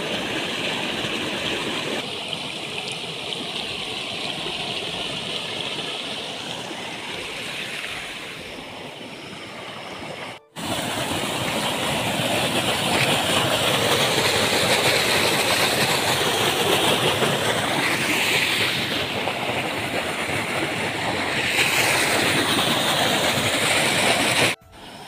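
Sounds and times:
muddy water gushing through drain: 0:10.5 - 0:24.6.

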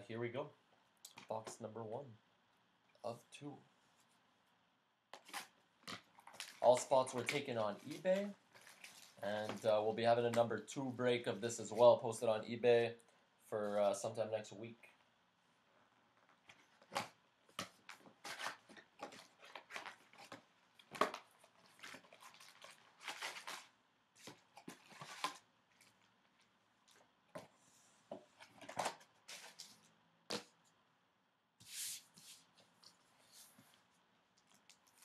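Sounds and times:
foil packs rustling and crinkling: 0:06.1 - 0:10.4, 0:17.7 - 0:26.1.

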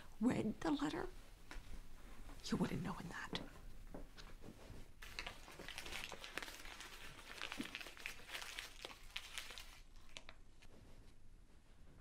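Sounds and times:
paper being crumpled: 0:05.0 - 0:10.7.

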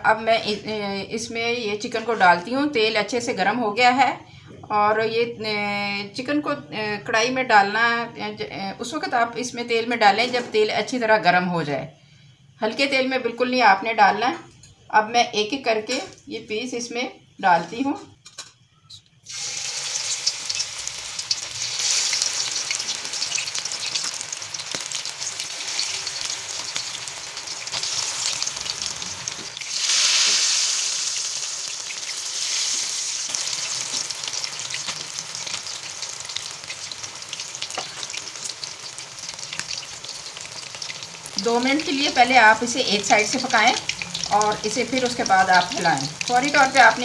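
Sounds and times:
chicken sizzling in hot oil: 0:19.2 - 0:47.0.

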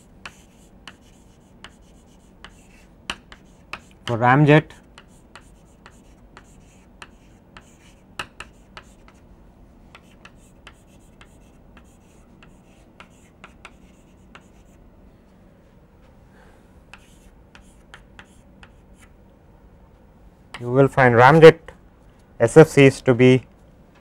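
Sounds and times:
chalk tapping and scratching: 0:00.0 - 0:04.2, 0:04.9 - 0:09.3, 0:09.9 - 0:14.8, 0:16.9 - 0:19.2.

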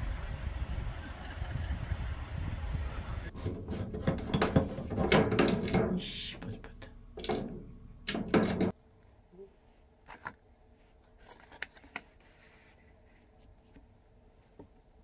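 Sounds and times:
low outdoor rumble: 0:00.0 - 0:10.7.

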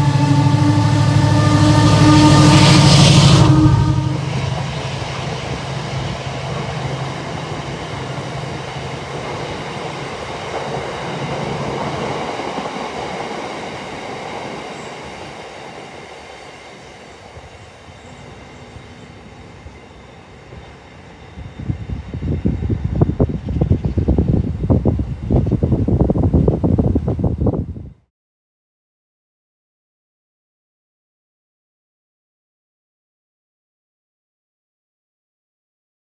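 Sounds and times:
train wheels on rails: 0:00.0 - 0:27.2
diesel locomotive engine: 0:00.0 - 0:27.6.

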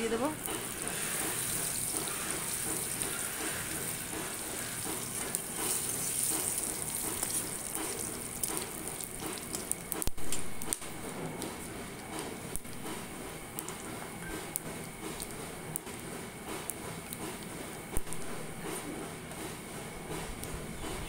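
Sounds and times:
spices sizzling in hot oil: 0:00.0 - 0:11.1
metal spatula stirring: 0:00.6 - 0:09.6.

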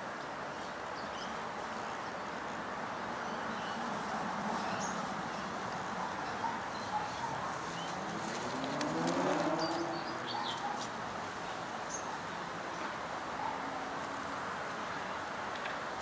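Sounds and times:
birds chirping: 0:04.6 - 0:10.8.

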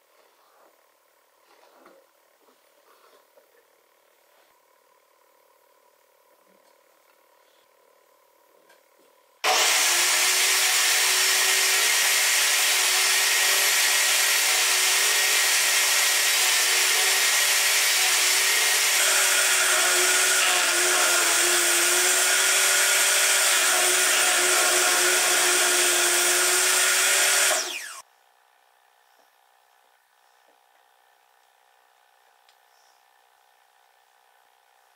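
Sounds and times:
table saw cutting wood: 0:09.4 - 0:28.0.

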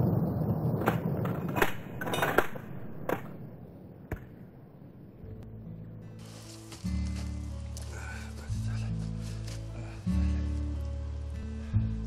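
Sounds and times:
soft background music: 0:05.1 - 0:12.0.

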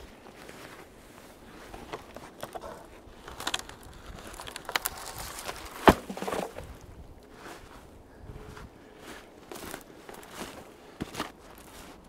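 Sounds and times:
branches rustling: 0:00.0 - 0:12.0
dead wood cracking and snapping: 0:01.9 - 0:06.7.

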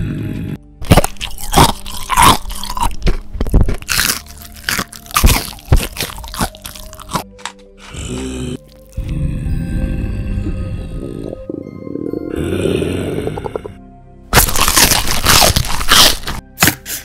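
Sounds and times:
crunching and chewing fish: 0:00.8 - 0:09.0, 0:14.4 - 0:16.4.

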